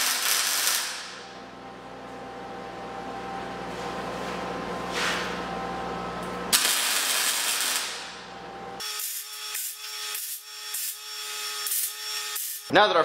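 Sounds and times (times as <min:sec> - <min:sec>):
welding arc crackling hiss: 0:00.0 - 0:01.2, 0:06.5 - 0:08.2, 0:08.8 - 0:12.7
welder low hum: 0:00.0 - 0:12.8.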